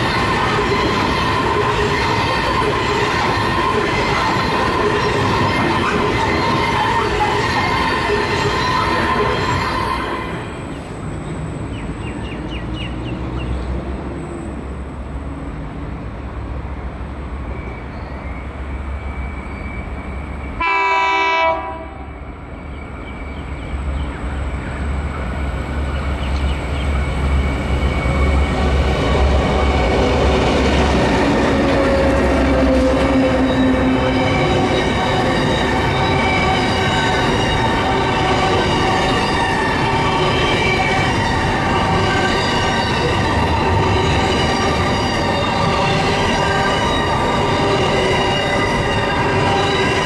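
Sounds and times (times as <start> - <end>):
diesel locomotive engines rumbling: 0.0 - 50.0
locomotive horn blast: 20.6 - 22.2.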